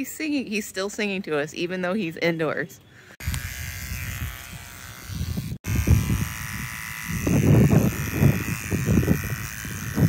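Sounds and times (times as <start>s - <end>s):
electric hair clippers buzzing: 3.2s - 10.0s.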